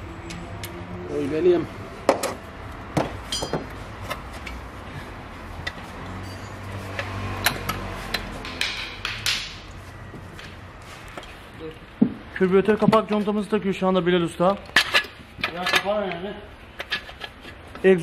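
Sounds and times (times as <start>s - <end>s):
steel tools clanking on engine parts: 3.2s - 4.6s, 5.6s - 9.1s, 14.6s - 17.6s.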